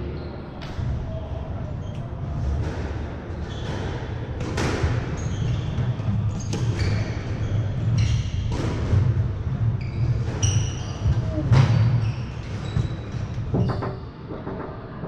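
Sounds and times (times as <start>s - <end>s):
squash ball hits: 2.5s - 7.3s, 8.4s - 12.0s.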